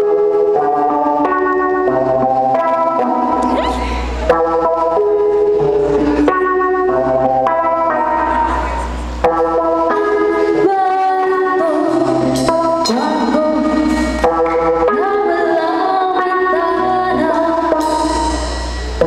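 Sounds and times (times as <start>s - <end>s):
woman singing: 3.4s - 4.1s, 10.2s - 18.6s.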